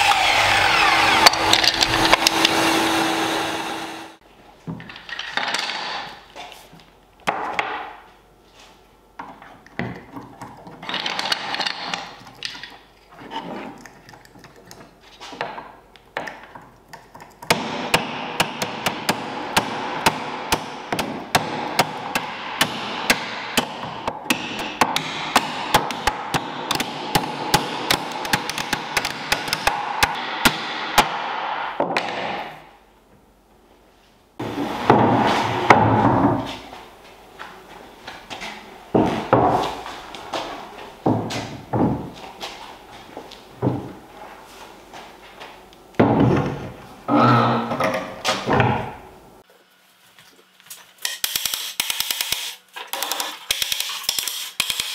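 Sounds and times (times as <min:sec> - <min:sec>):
hammer tapping wooden dowels: 0:15.4 - 0:31.2.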